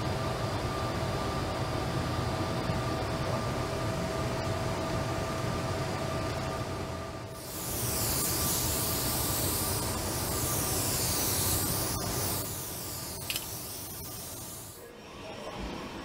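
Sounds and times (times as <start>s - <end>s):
paint spray gun hissing: 7.3s - 14.8s.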